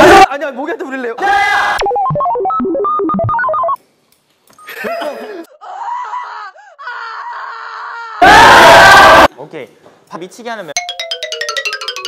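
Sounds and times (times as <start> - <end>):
electronic beep tones: 1.8 - 3.8
people laughing: 4.7 - 5.6.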